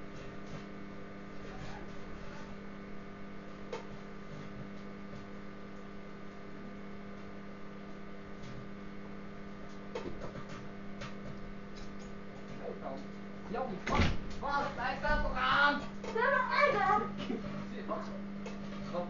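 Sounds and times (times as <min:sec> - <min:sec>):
microwave oven humming: 0:00.0 - 0:19.0.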